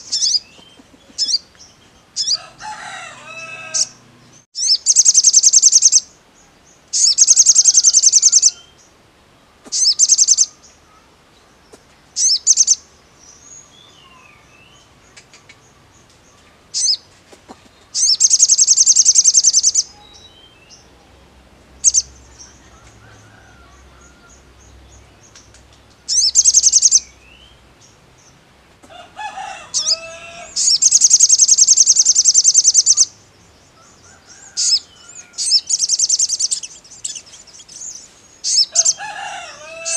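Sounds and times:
bird rapid high-pitched trills: 0.0s - 1.4s, 4.6s - 6.1s, 7.0s - 8.6s, 9.8s - 10.5s, 12.2s - 12.8s, 17.9s - 19.9s, 21.8s - 22.1s, 26.1s - 27.1s, 29.7s - 33.1s, 34.6s - 39.0s
lower rough bird chirping: 0.0s - 9.0s, 9.7s - 28.4s, 29.6s - 39.9s.

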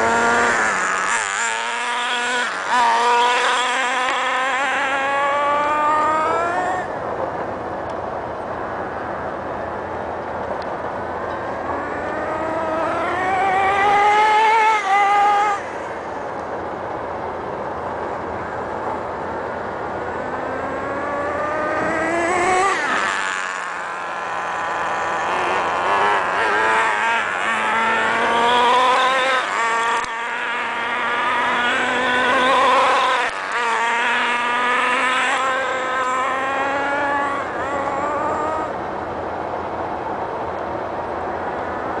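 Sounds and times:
rc truck engine screaming: 0.0s - 7.1s, 11.4s - 16.9s, 18.8s - 39.8s.

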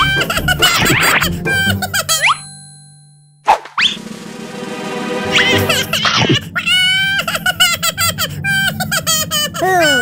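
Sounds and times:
children's background music: 0.0s - 2.5s, 4.0s - 6.9s
cartoon pop with rising pitch: 3.4s - 4.0s.

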